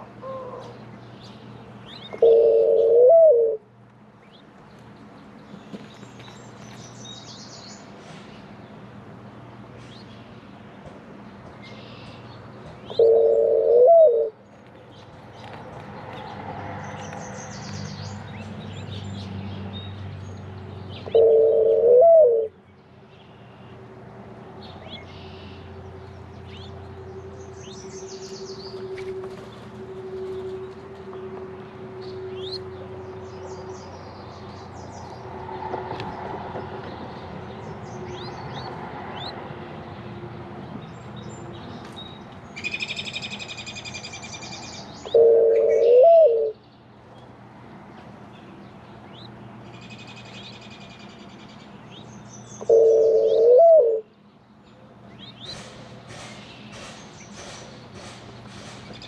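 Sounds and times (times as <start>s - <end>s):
mourning dove cooing: 0.0s - 0.8s, 2.0s - 3.7s, 12.9s - 14.4s, 21.0s - 22.6s, 45.0s - 46.6s, 52.6s - 54.1s
small birds chirping: 0.2s - 2.4s, 4.2s - 8.9s, 14.4s - 21.4s, 24.6s - 30.5s, 46.6s - 53.5s, 54.1s - 59.0s.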